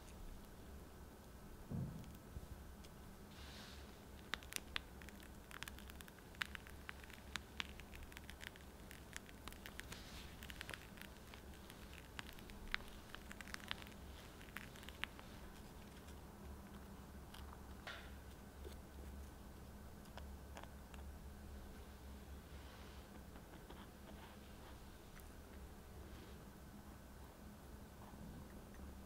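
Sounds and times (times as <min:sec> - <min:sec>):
whipped cream squishing: 0:03.8 - 0:21.6.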